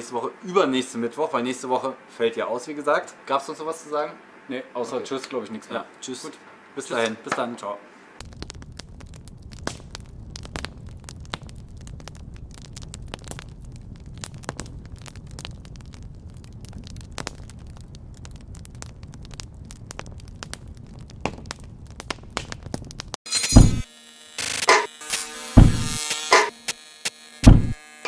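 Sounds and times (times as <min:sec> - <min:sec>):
fire crackling and popping: 0:08.2 - 0:24.8, 0:25.6 - 0:27.8.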